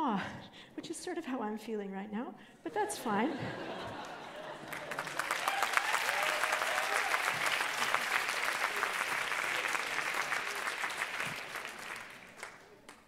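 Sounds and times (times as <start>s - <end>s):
audience applause: 3.9s - 13.0s.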